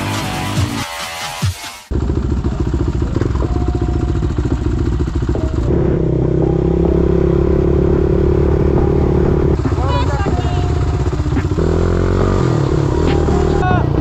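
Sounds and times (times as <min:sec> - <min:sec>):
quad engine running: 0:01.9 - 0:14.0.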